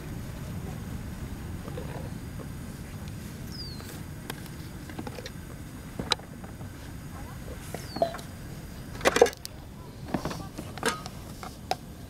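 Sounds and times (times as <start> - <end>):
high falling chirp: 3.4 - 3.9.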